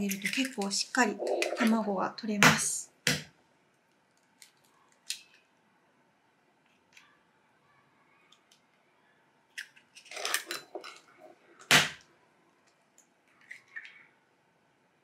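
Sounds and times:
eggshell crackling: 0.0s - 1.9s.

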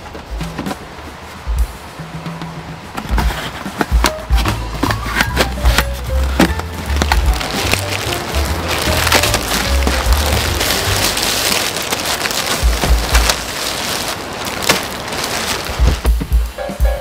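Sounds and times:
plastic packaging crinkling: 4.0s - 16.3s.

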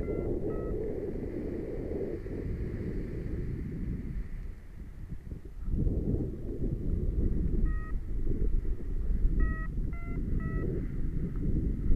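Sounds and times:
short electronic beeps: 0.0s - 0.8s, 7.7s - 8.0s, 9.4s - 10.7s
wind rumbling on microphone: 0.0s - 11.9s.

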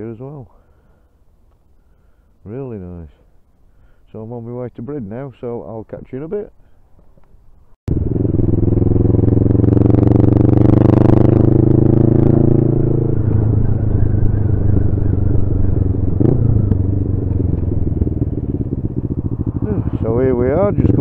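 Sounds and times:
motorcycle engine: 7.9s - 21.0s.

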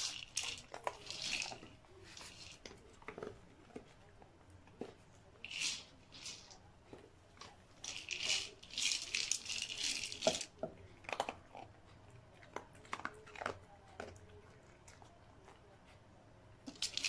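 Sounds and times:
dog food rattling in plastic ball: 0.0s - 3.4s, 5.4s - 6.6s, 7.8s - 11.4s, 16.6s - 17.0s.

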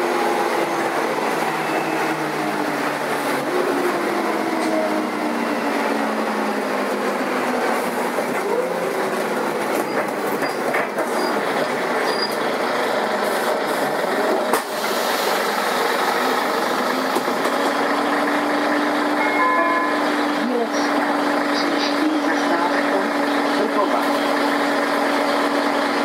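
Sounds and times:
bus engine and road noise: 0.0s - 26.0s.

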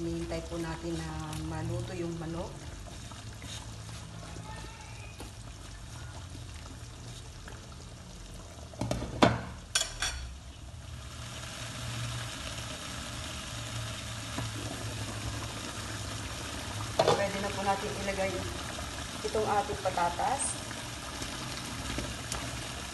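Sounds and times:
curry bubbling: 0.0s - 22.9s.

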